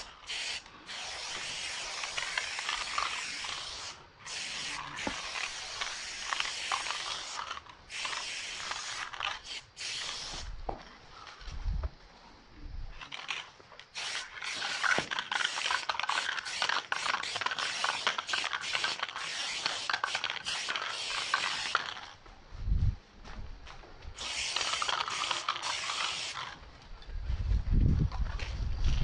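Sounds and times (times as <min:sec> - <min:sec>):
spray paint can hissing: 0:00.0 - 0:10.5, 0:13.1 - 0:22.2, 0:24.2 - 0:26.6.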